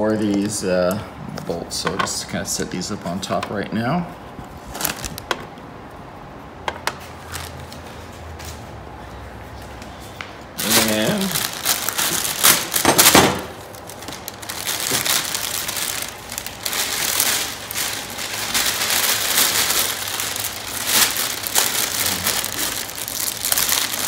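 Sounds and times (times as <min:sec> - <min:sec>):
plastic bag crinkling: 0:04.6 - 0:05.3, 0:07.2 - 0:07.9, 0:10.5 - 0:24.0.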